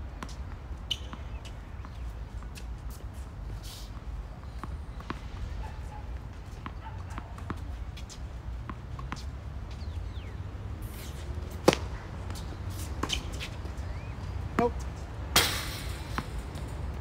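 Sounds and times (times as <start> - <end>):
tennis ball bouncing on court: 0.2 - 3.0, 4.4 - 5.4, 6.5 - 17.0
racket striking tennis ball: 10.2 - 13.8, 15.3 - 16.8.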